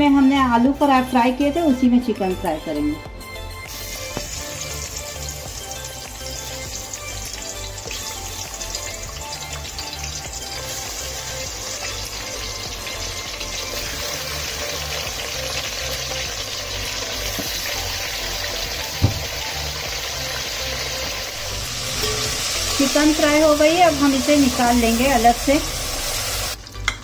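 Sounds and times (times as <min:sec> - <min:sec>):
background music with bass line: 0:00.0 - 0:27.0
chicken sizzling in hot oil: 0:03.6 - 0:27.0
brief thump: 0:19.0 - 0:19.4.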